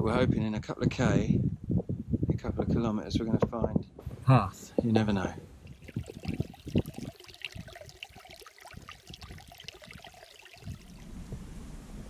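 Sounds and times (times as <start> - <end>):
stream trickling over rock: 5.6 - 11.1.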